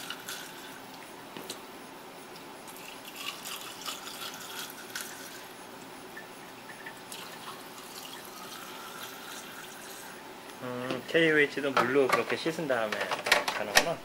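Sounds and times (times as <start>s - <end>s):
liquid pouring and splashing: 2.7s - 5.5s, 6.5s - 10.2s
plastic containers clicking: 11.8s - 14.0s.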